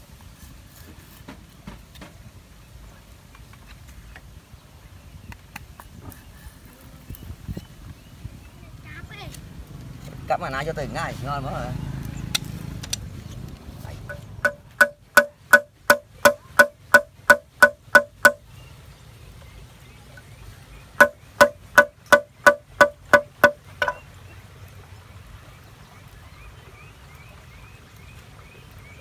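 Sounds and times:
machete chopping bamboo: 14.4 - 18.4, 21.0 - 24.0.

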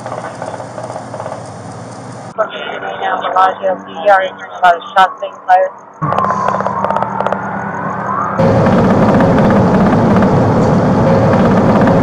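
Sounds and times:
police siren: 2.4 - 12.0
engine and road noise: 6.0 - 12.0.

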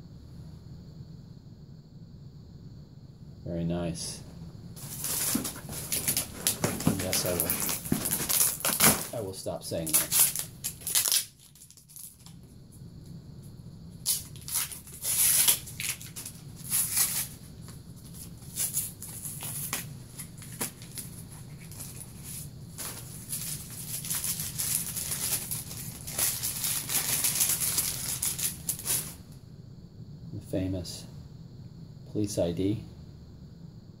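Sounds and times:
tissue paper and packing peanuts rustling: 4.8 - 12.3, 14.1 - 17.4, 18.0 - 29.2.

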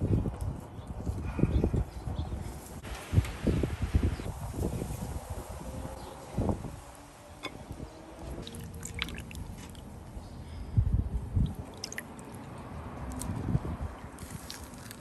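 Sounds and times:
wet squishing of food: 8.4 - 9.9, 11.4 - 15.0.

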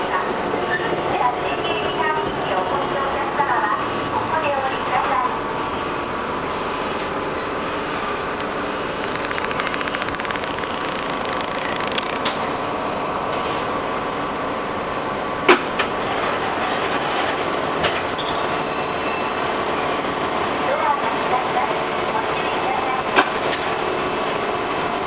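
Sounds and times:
train motors and wheels running: 0.0 - 25.0
sharp clicks: 8.4 - 12.4.

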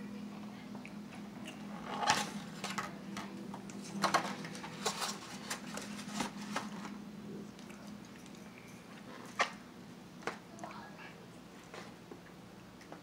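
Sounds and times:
chewing food: 6.8 - 9.5.

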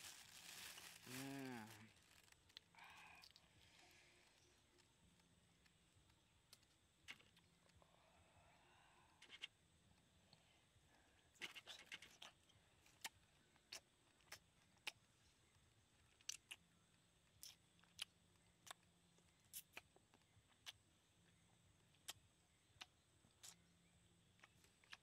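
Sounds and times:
chewing and lip-smacking: 11.4 - 15.0, 16.0 - 20.8, 21.8 - 23.6, 24.4 - 25.0
mouth clicks and smacks: 11.4 - 15.0, 17.3 - 20.8, 22.8 - 23.6.

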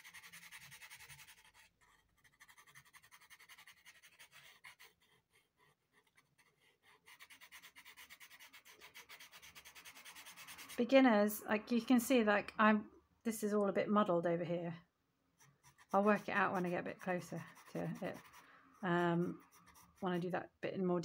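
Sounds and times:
pencil scratching on rough paper: 0.0 - 11.0, 15.4 - 20.5.

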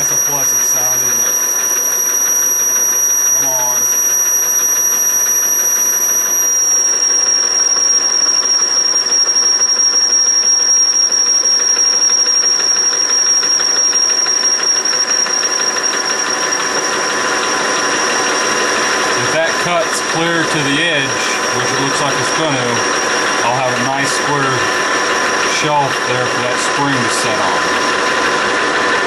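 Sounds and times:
metal lathe whining: 0.0 - 29.0.

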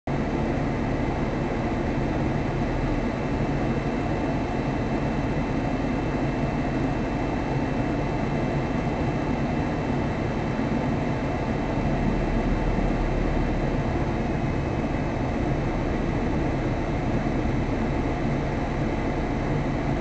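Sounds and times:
car engine idling: 10.7 - 20.0.

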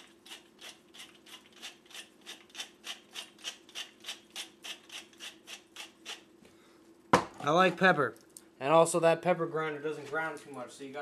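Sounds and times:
pepper grinder grinding: 0.0 - 6.3.

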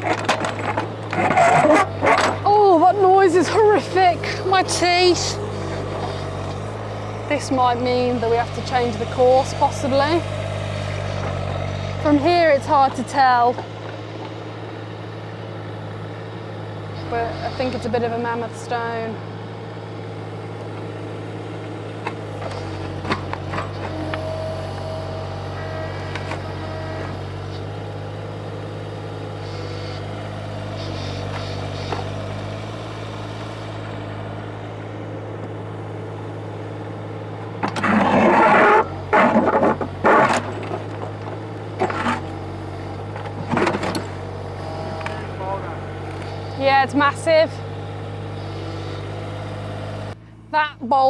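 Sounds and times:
metal scraping on stone: 0.0 - 2.4
digger engine running: 0.0 - 51.0.

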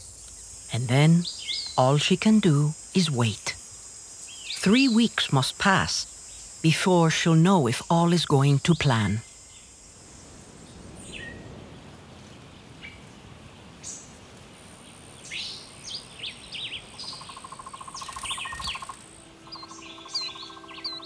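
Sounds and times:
high insect-like whine: 0.0 - 21.0
birds chirping and calling: 15.3 - 21.0
low steady tones: 18.2 - 21.0.

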